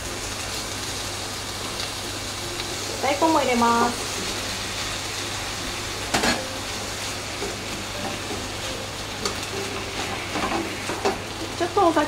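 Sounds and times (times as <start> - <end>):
meat sizzling in a pan: 0.0 - 12.0.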